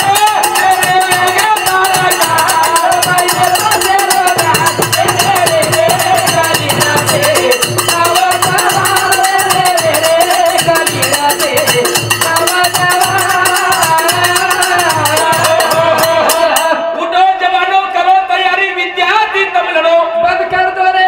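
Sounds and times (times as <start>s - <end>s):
hand drum beating: 0.0s - 16.8s
metallic jingling percussion: 0.0s - 16.8s.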